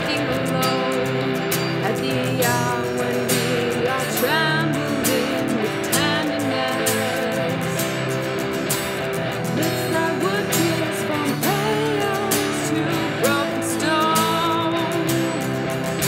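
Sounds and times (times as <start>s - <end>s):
guitar: 0.0s - 16.0s.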